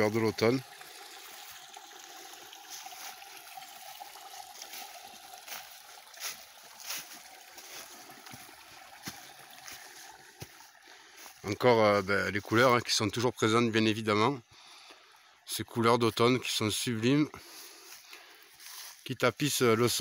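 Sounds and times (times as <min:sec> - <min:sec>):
water trickling into stone basin: 0:00.0 - 0:20.0
footsteps on dry leaves: 0:04.7 - 0:11.5, 0:17.6 - 0:19.0.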